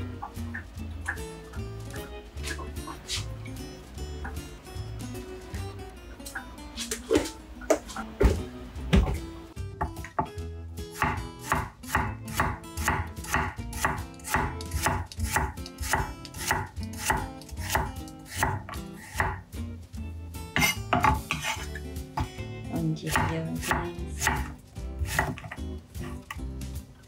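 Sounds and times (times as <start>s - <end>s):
knife chopping on wooden board: 11.0s - 19.4s, 20.6s - 21.6s, 23.1s - 25.6s.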